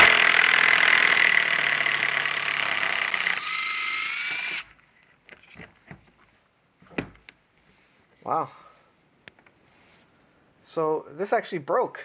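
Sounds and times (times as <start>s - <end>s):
bolt head shearing off: 0.0s - 4.7s
cordless drill under heavy load: 0.0s - 4.7s
drill motor whining up: 0.0s - 4.7s.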